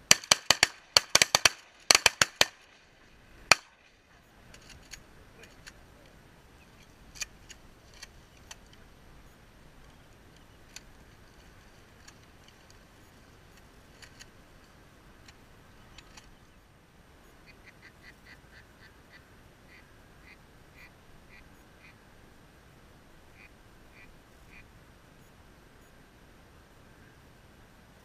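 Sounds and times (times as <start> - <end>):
duck quacks: 23.3 - 24.6.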